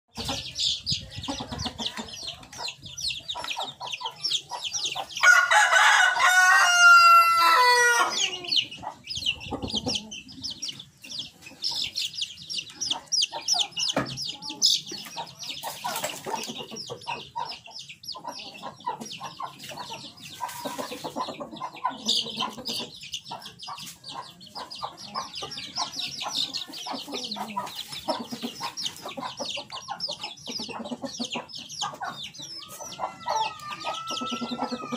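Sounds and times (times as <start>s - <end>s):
chickens clucking: 0.1s - 34.9s
chicks peeping: 0.1s - 34.9s
rooster crowing: 5.2s - 8.5s, 33.0s - 34.9s.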